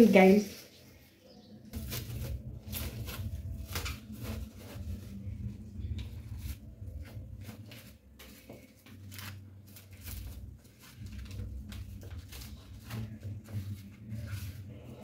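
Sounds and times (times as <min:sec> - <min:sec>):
low steady hum: 0:00.0 - 0:15.0
cling film crinkling: 0:05.8 - 0:14.6.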